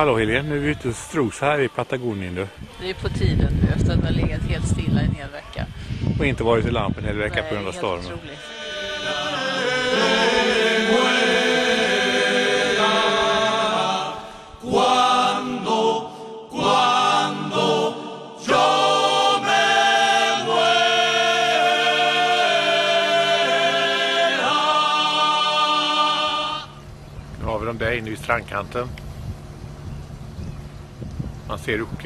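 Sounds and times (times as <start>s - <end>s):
choir singing held chords: 6.9s - 27.0s.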